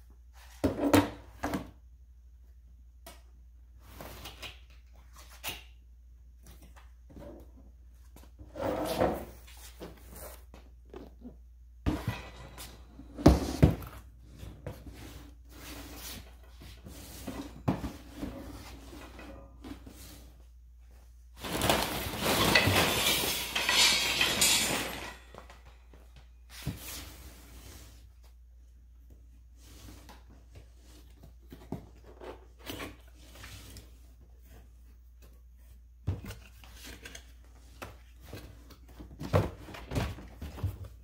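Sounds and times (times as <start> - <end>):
cardboard rustling and scraping: 11.9 - 24.8.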